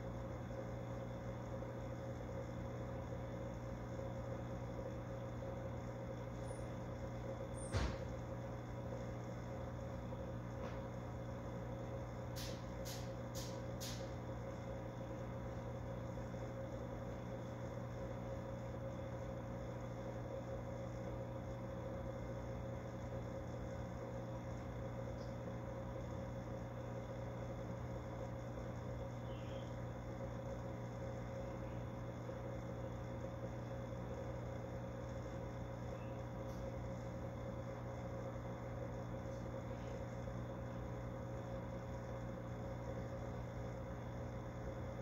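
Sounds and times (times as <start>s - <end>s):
fish tank equipment humming: 0.0s - 45.0s.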